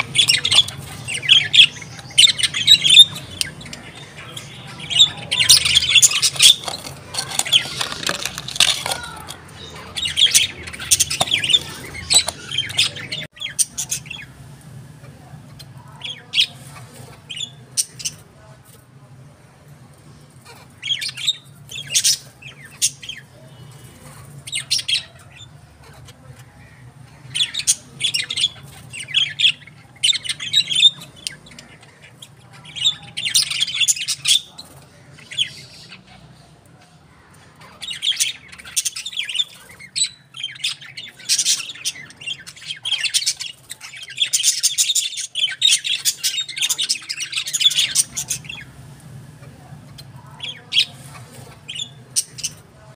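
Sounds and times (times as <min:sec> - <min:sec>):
birds chirping and squawking: 0:00.0 - 0:52.9.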